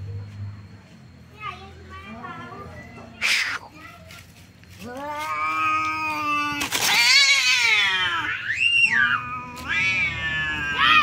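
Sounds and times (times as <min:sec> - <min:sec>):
cats caterwauling: 0:04.8 - 0:11.0.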